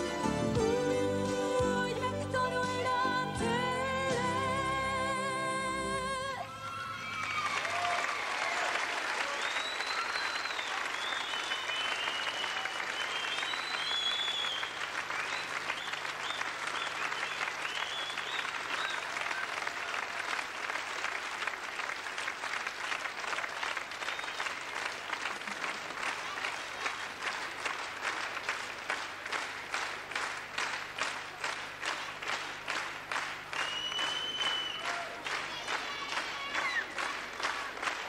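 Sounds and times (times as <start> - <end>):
audience applauding: 6.5 - 38.0
rhythmic clapping in unison: 7.6 - 38.0
shrill whistles: 9.3 - 19.2, 33.6 - 35.1.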